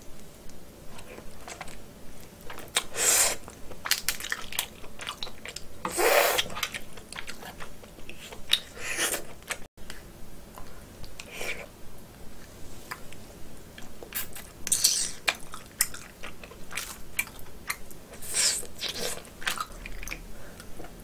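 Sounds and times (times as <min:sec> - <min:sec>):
chewing and wet mouth clicks: 0:13.8 - 0:18.0.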